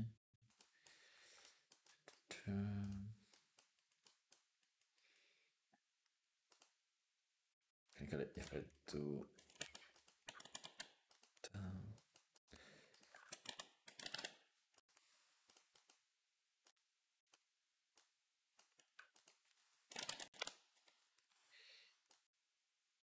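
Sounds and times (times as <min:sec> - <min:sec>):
typing on computer keyboard: 0:09.4 - 0:11.4, 0:13.0 - 0:14.4, 0:18.6 - 0:20.6.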